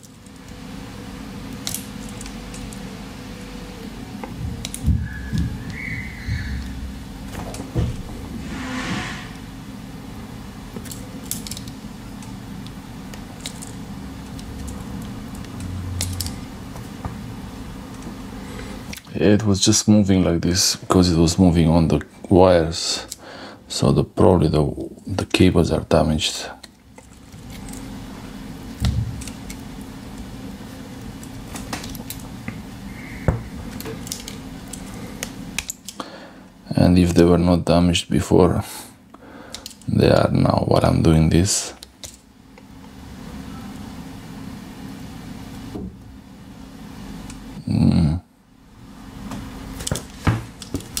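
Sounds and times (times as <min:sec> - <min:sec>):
low steady hum: 0:00.0 - 0:51.0.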